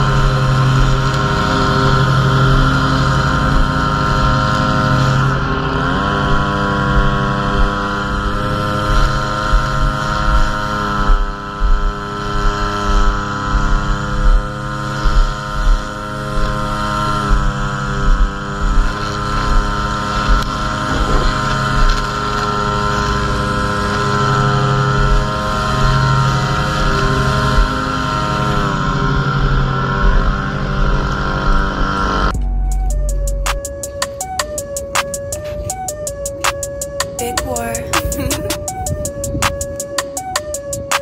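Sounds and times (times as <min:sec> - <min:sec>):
wind buffeting microphone: 0:00.0 - 0:26.0, 0:37.9 - 0:41.0.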